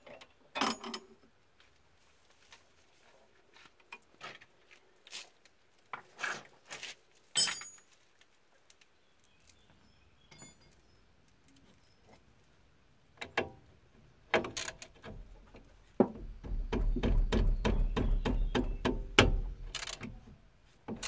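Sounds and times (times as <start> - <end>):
ringing metal clank: 7.4 - 7.8
metal tools clinking: 7.4 - 7.9, 10.3 - 10.9.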